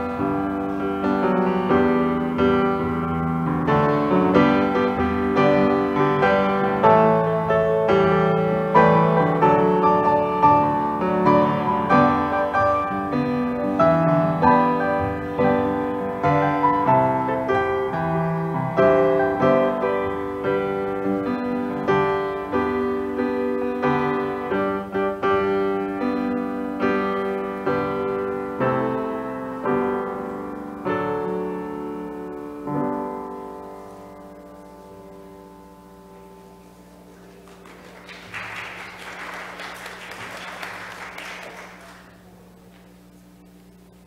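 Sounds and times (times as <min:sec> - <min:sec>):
solo grand piano: 0:00.0 - 0:44.0.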